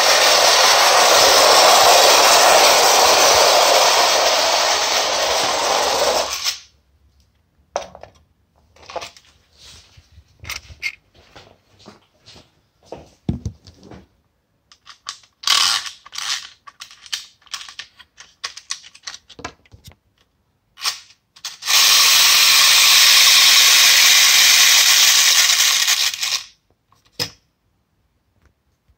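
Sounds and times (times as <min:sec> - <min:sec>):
clockwork motor whirring: 0:00.0 - 0:06.6, 0:20.8 - 0:26.5
toy clicks and rattles: 0:00.1 - 0:06.6, 0:14.7 - 0:19.4, 0:20.8 - 0:26.6.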